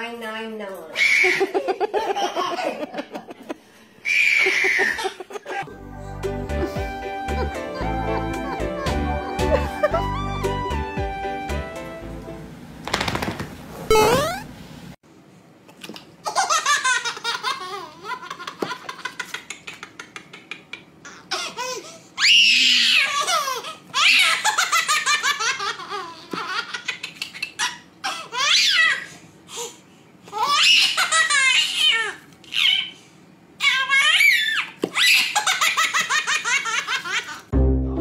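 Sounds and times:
baby squealing with laughter: 1.0s - 1.7s, 4.0s - 5.3s, 21.0s - 29.2s, 30.3s - 33.0s, 33.6s - 37.4s.

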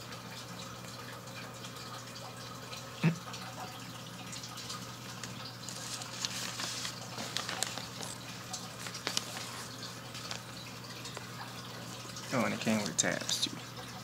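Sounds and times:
paper rustling: 5.6s - 11.3s
plastic bag crinkling: 5.6s - 11.5s.

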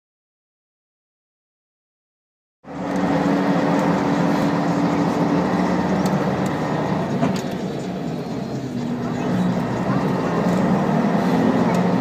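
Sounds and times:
diesel engine drone: 2.6s - 12.0s.

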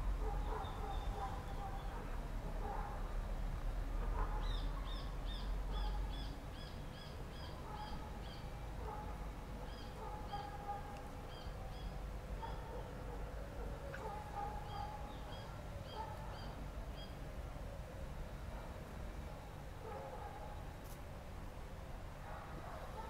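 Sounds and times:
fainter lower bird calls: 9.7s - 10.6s, 11.3s - 12.0s, 14.6s - 17.2s.

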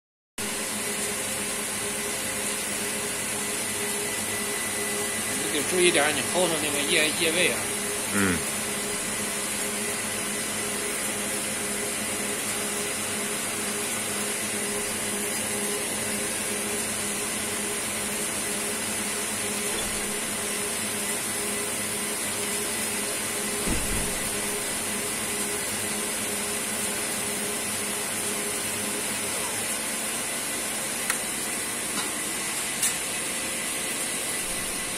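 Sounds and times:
pump motor humming with whine: 0.4s - 34.9s.

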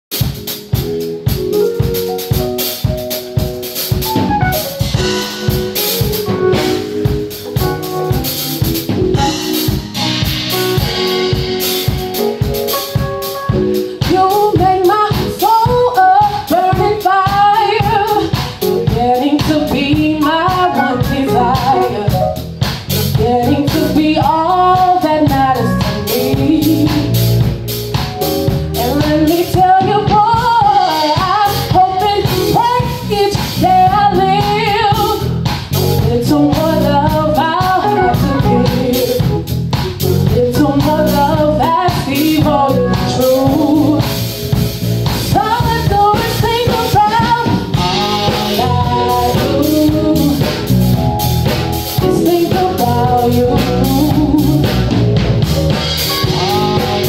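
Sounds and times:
live soul band playing: 0.1s - 57.0s
woman singing: 14.0s - 22.4s, 23.0s - 27.3s, 28.8s - 39.4s, 40.2s - 44.3s, 45.3s - 50.7s, 52.0s - 55.0s, 56.2s - 57.0s.

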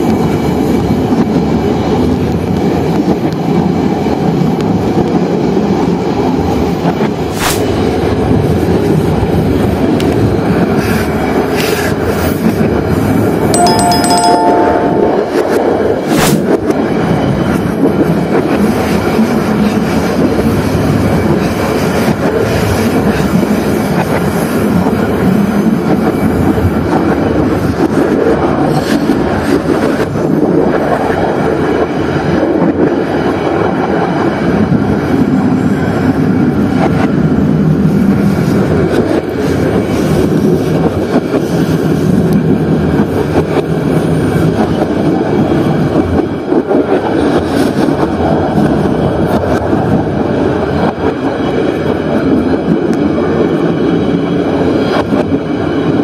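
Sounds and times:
wheels rumbling on rails: 15.4s - 56.0s.

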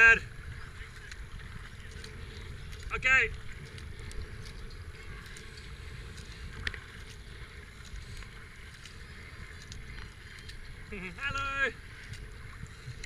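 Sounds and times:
paddle strokes splashing: 0.0s - 13.0s
wind rumbling on microphone: 0.0s - 13.0s.

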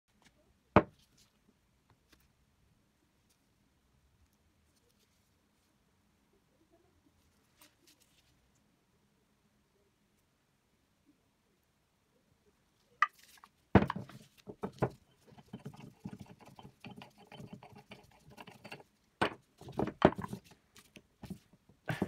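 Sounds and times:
metal knocks and scraping: 13.8s - 20.5s.

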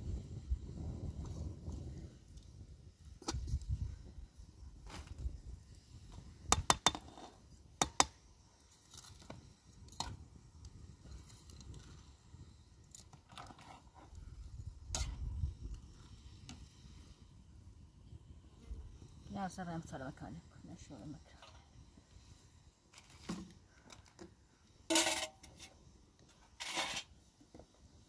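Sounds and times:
hard objects clicking and knocking: 6.5s - 7.2s.

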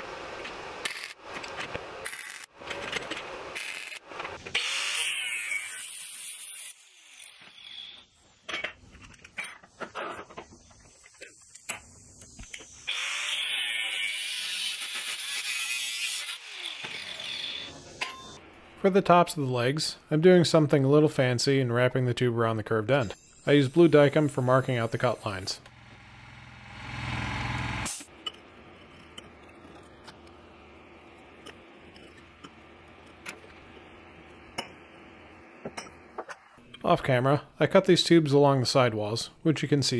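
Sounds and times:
angle grinder cutting steel: 4.6s - 8.0s, 12.9s - 18.3s, 23.2s - 28.1s.

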